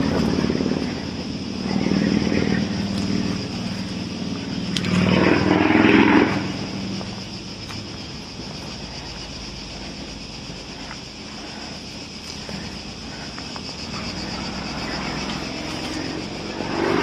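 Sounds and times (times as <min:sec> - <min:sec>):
vehicle engine passing by: 0:00.0 - 0:07.4.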